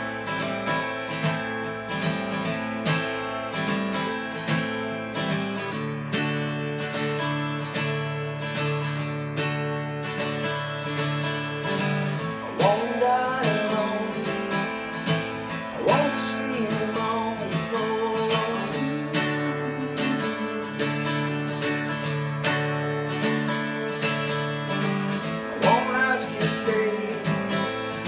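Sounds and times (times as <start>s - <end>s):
acoustic guitar strumming: 0.0s - 28.0s
man singing: 12.3s - 21.9s, 25.5s - 28.0s.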